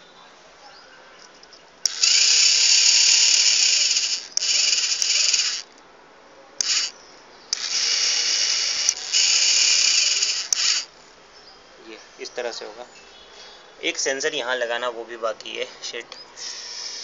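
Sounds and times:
small electric gear motors running: 1.8 - 5.7, 6.6 - 10.9, 16.4 - 17.0.

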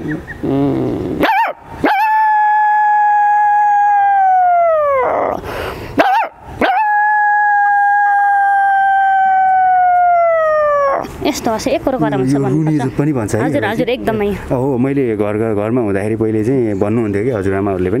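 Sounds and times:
woman imitating dog howl: 1.2 - 5.4, 6.0 - 11.1
sharp breath: 5.4 - 6.0.

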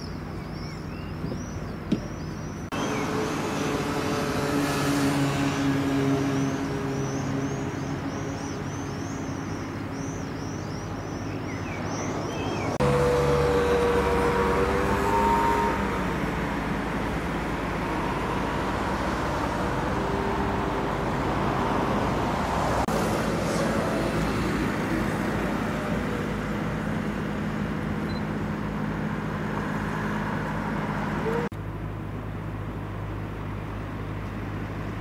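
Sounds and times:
engine hum: 0.0 - 35.0
traffic rushing noise: 0.0 - 35.0.

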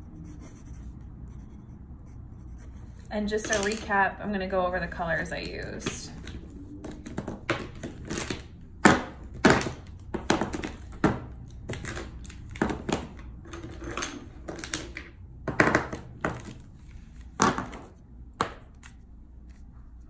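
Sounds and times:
plastic markers clacking together: 3.4 - 3.8.

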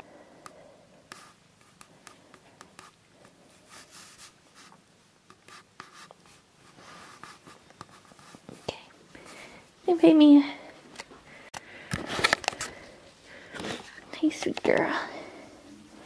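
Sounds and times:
hand stroking cat fur: 2.7 - 4.8, 5.5 - 8.7.

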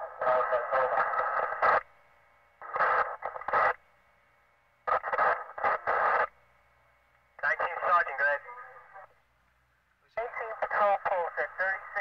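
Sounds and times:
radio transmission click: 2.6 - 3.8, 10.2 - 12.0
garbled police radio voice: 10.1 - 12.0.

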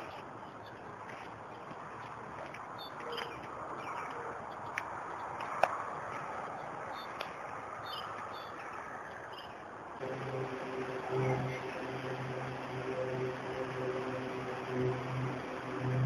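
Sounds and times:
steady outdoor hiss: 0.0 - 16.0
steady chord of low tones: 10.0 - 16.0.

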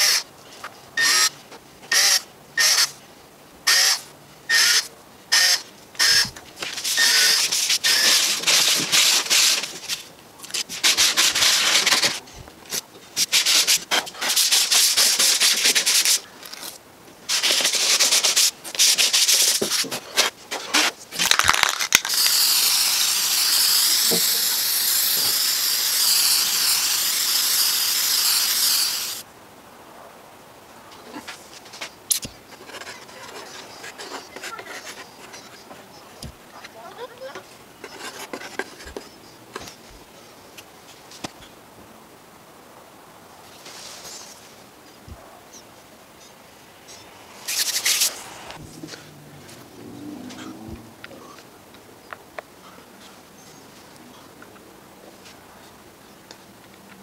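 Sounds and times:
cordless drill driving screws: 1.0 - 1.3, 3.7 - 4.8, 22.1 - 29.2
hissing and rubbing: 3.7 - 12.2, 13.2 - 16.7, 17.3 - 29.2, 46.7 - 49.0
aerosol spray paint hiss: 13.2 - 16.2, 17.3 - 19.8, 22.0 - 29.2, 47.3 - 48.6.

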